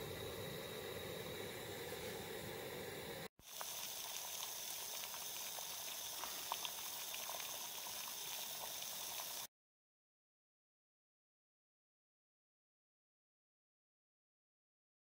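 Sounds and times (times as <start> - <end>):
gas stove burner hiss: 0.0 - 9.5
water bubbling at a boil: 0.1 - 9.5.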